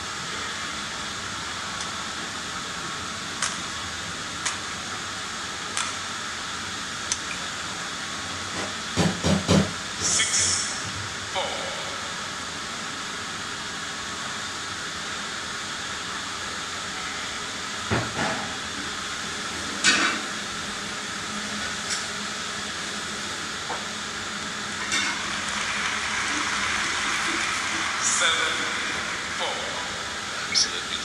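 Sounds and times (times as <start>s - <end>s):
sharp knocks: 9.0s - 9.7s
hall ambience hiss: 10.0s - 13.4s, 24.4s - 31.0s.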